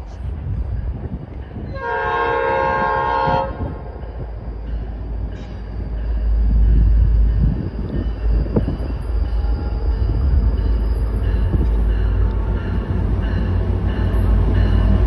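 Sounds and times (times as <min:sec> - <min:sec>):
train rumble: 0:00.0 - 0:15.0
train horn blast: 0:01.7 - 0:03.9.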